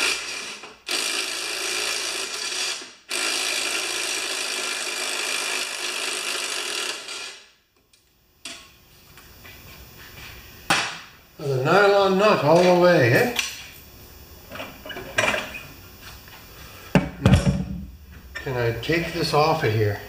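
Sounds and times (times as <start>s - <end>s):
cordless drill spinning off nut: 0.0s - 7.4s.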